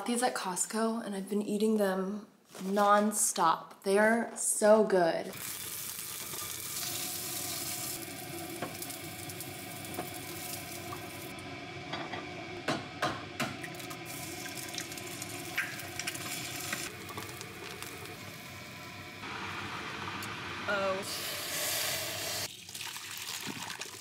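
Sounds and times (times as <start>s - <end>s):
food sizzling in a pan: 5.3s - 11.4s, 13.6s - 24.0s.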